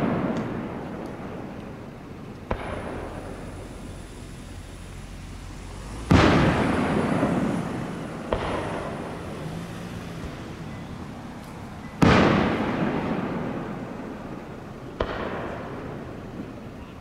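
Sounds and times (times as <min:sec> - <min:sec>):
firework booms with echo: 0:00.0 - 0:04.1, 0:06.0 - 0:09.4, 0:12.0 - 0:16.7
sharp firework crack: 0:00.0 - 0:10.4, 0:11.4 - 0:16.9.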